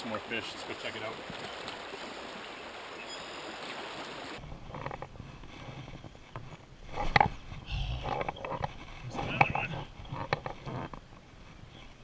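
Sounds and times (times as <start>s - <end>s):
creek water rushing: 0.0s - 4.4s.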